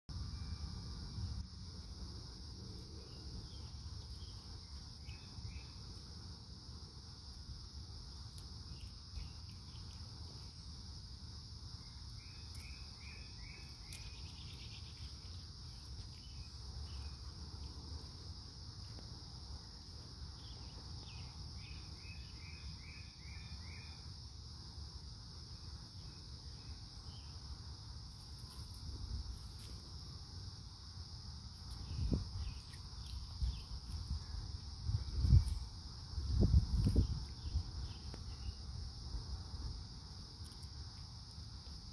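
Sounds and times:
insect chorus: 0:00.1 - 0:41.9
bird chirping: 0:03.0 - 0:05.8, 0:11.8 - 0:17.4.

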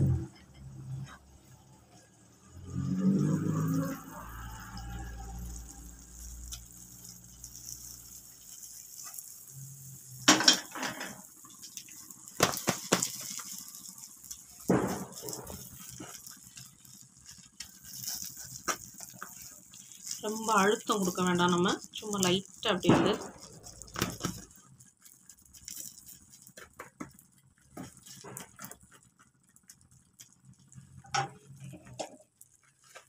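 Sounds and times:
metal pan clattering: 0:10.3 - 0:11.3.

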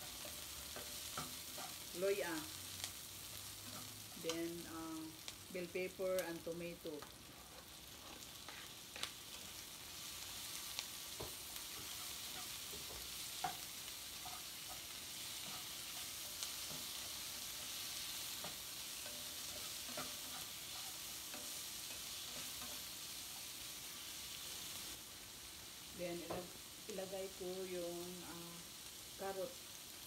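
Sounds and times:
spatula scraping and knocking pan: 0:00.0 - 0:02.2, 0:07.0 - 0:09.6, 0:11.0 - 0:24.0
vegetables sizzling in pan: 0:00.0 - 0:30.0.

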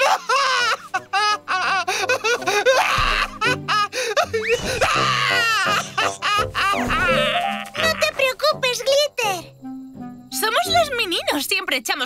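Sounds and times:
background music: 0:00.0 - 0:12.0
cartoon voice sobbing wails: 0:04.9 - 0:08.2.

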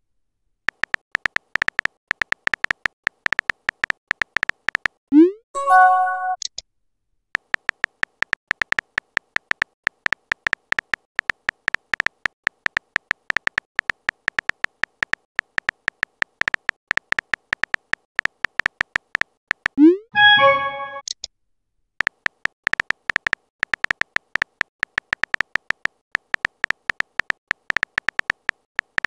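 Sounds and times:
message sent swoop and chime: 0:05.2 - 0:06.4, 0:19.8 - 0:21.0
phone keyboard taps: 0:22.0 - 0:29.0.

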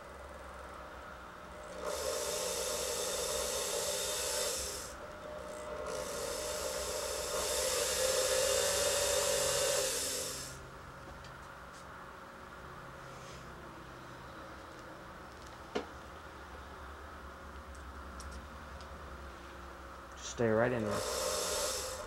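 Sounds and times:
rotary bit grinding acrylic: 0:01.7 - 0:10.6, 0:20.8 - 0:22.0.

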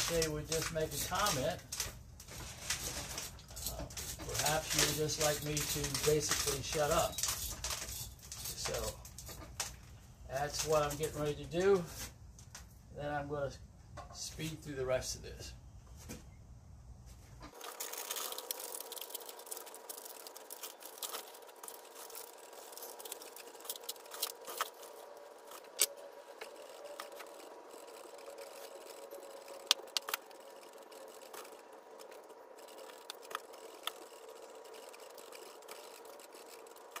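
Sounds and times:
steady hum: 0:14.7 - 0:37.0.

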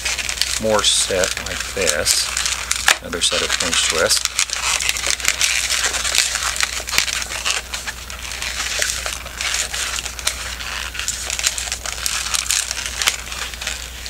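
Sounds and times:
balloons squeaking and rubbing: 0:00.0 - 0:14.0.

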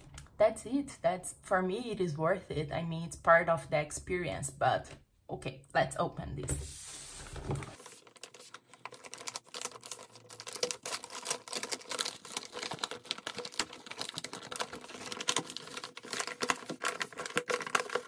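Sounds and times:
packaging crinkling and tearing: 0:07.7 - 0:18.0.

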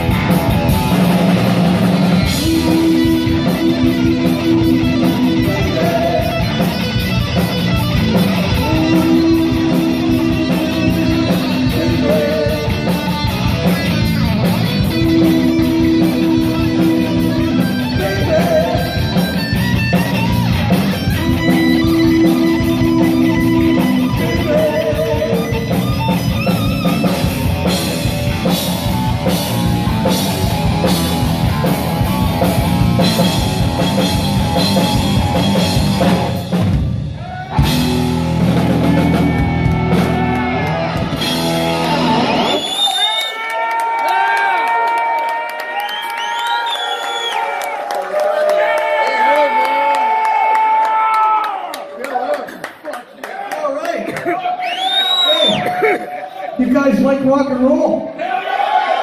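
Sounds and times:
heavy metal band playing live: 0:00.0 - 0:42.9.

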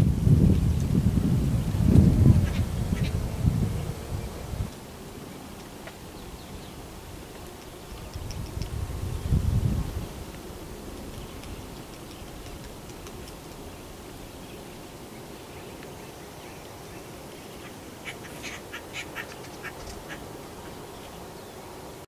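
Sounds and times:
woodpecker short calls: 0:17.6 - 0:20.3.

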